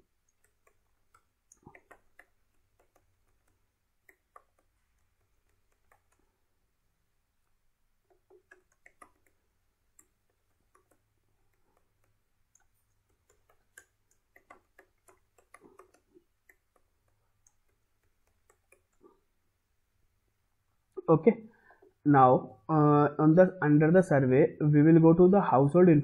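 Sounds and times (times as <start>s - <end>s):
computer keyboard typing: 0.2s - 6.3s, 8.1s - 19.1s.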